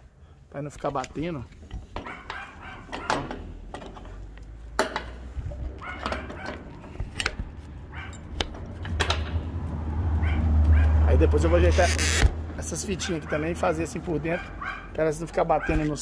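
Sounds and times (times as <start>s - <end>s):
dog barking: 2.0s - 3.2s, 5.8s - 6.7s, 7.9s - 8.2s, 10.2s - 11.0s, 13.1s - 13.5s, 14.3s - 15.0s, 15.6s - 16.0s.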